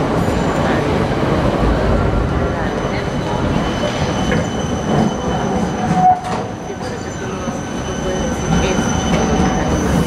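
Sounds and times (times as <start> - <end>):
high wheel squeal: 2.9 - 10.0.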